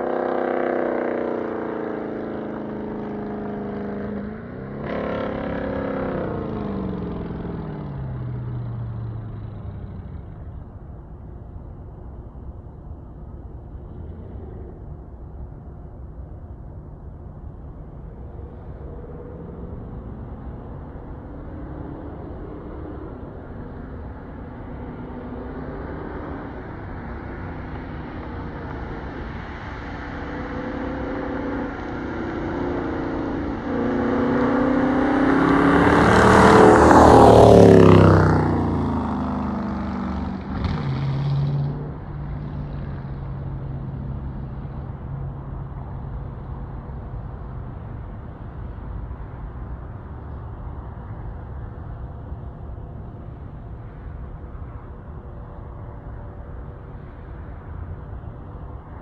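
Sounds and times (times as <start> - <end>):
car accelerating past: 0.0 - 10.5, 18.2 - 47.2
low steady engine drone: 0.0 - 59.0.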